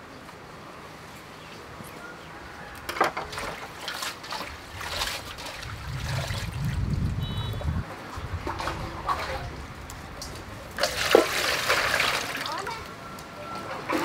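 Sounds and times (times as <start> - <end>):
water splashing in metal bowl: 10.2 - 12.8.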